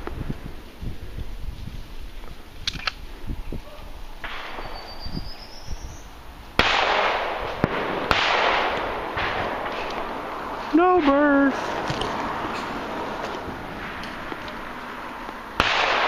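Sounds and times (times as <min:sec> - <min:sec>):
shotgun shots echoing: 0:04.2 - 0:05.0, 0:06.6 - 0:10.2, 0:15.6 - 0:16.0.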